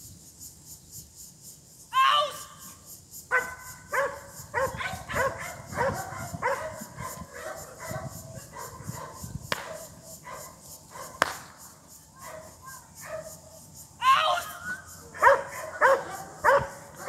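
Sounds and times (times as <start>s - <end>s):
dog barking: 3.3s - 11.3s, 12.2s - 13.5s, 14.5s - 17.0s
sharp cracks: 9.5s - 9.9s, 11.2s - 11.8s.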